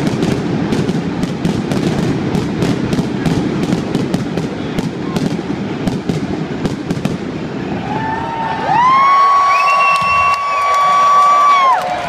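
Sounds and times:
fireworks bangs and crackles: 0:00.0 - 0:11.6
crowd whooping: 0:07.5 - 0:12.0.

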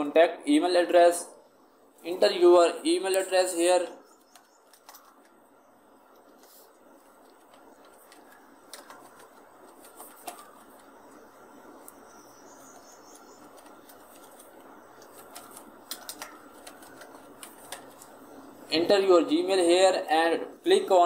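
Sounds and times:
steady low hiss: 0:00.0 - 0:21.0
keyboard keys typing: 0:04.2 - 0:05.4, 0:07.0 - 0:12.0, 0:12.6 - 0:18.5.

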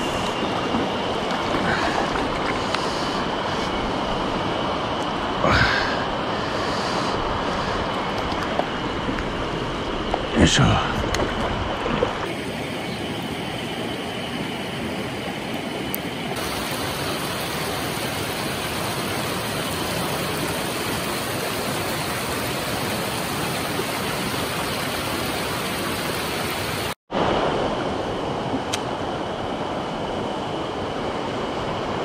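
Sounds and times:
stream rushing over rocks: 0:14.8 - 0:27.4.

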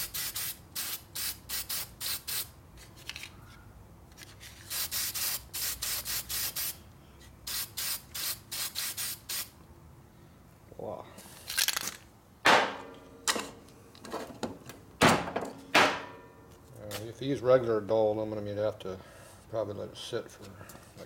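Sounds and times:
spray paint short spurts: 0:00.0 - 0:02.5, 0:04.6 - 0:06.8, 0:07.4 - 0:09.5.

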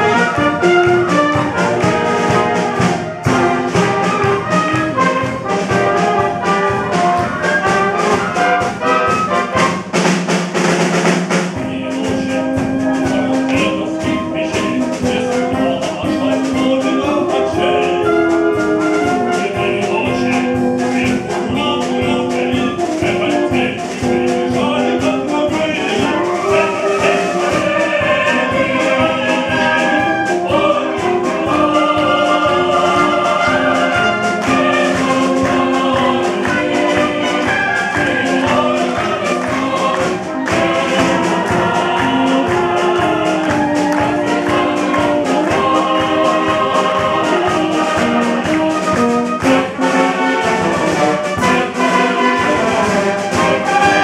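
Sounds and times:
wind band playing: 0:00.0 - 0:54.0
voices singing melody: 0:11.5 - 0:54.0.

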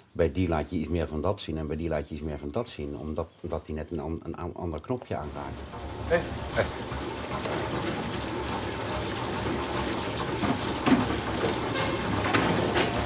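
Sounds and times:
steady rain falling: 0:05.3 - 0:13.0.

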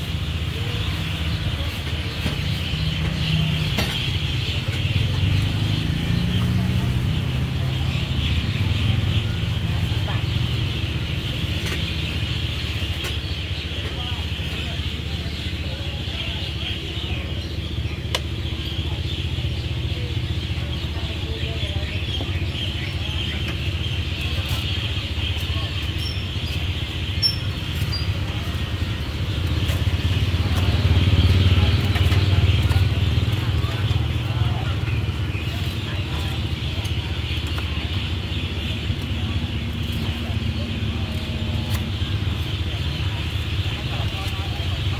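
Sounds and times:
engine hum: 0:00.0 - 0:44.9.

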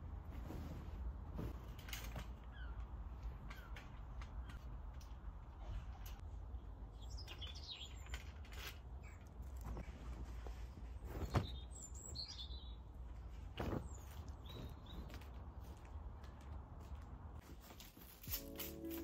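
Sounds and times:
small birds chirping: 0:02.4 - 0:04.8, 0:05.5 - 0:09.9, 0:10.5 - 0:15.8.

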